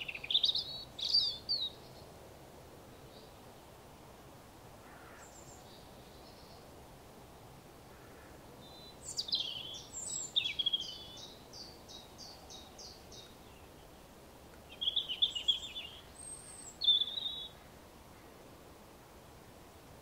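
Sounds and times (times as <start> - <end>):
robin singing: 0.0 - 2.0, 8.6 - 17.7.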